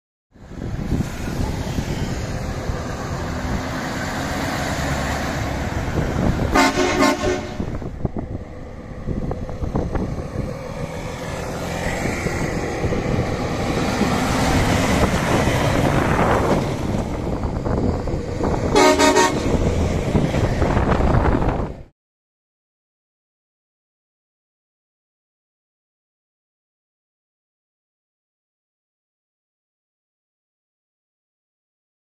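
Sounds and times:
road noise: 0:00.3 - 0:21.9
diesel truck engine driving by: 0:00.4 - 0:21.9
truck horn blast: 0:06.4 - 0:07.9, 0:18.7 - 0:19.7.

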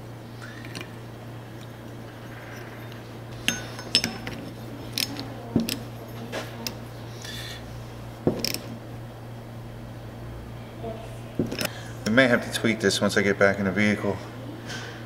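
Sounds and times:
metal parts clinking: 0:00.5 - 0:01.0, 0:01.6 - 0:06.8, 0:08.3 - 0:08.7, 0:11.4 - 0:11.7.

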